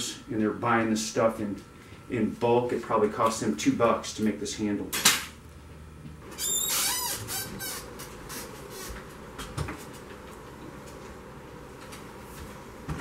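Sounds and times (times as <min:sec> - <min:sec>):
low room hum: 0:00.0 - 0:13.0
door squeaking open: 0:06.3 - 0:08.5.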